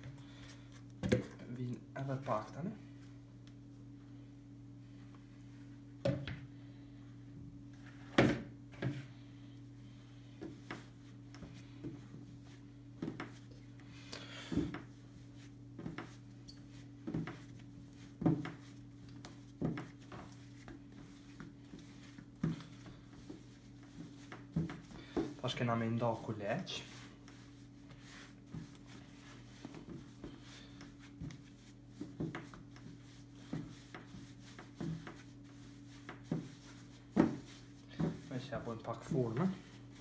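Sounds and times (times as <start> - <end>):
low steady hum: 0.0 - 40.0
dough thudding on wooden table: 36.1 - 38.3.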